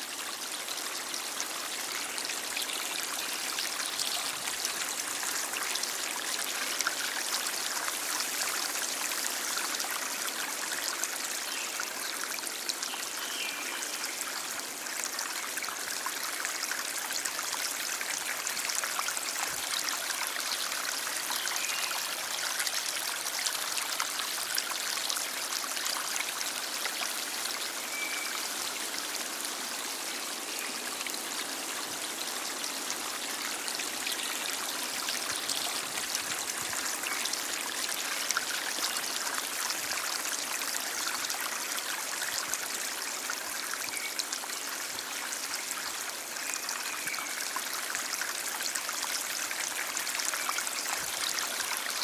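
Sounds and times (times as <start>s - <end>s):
stream flowing: 0.0s - 52.0s.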